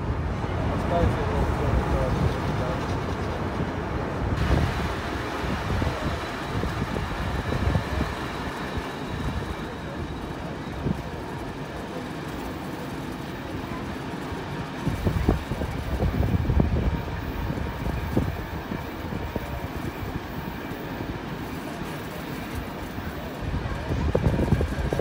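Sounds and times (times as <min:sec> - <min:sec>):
train carriage rumbling on track: 0:00.0 - 0:25.0.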